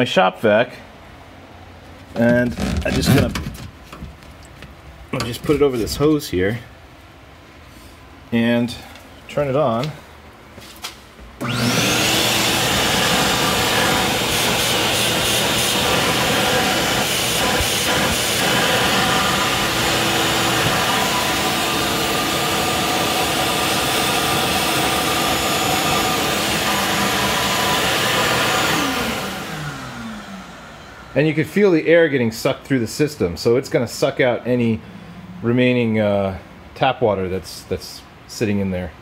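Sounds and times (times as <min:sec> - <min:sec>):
shop vac motor running: 0:11.4 - 0:31.4.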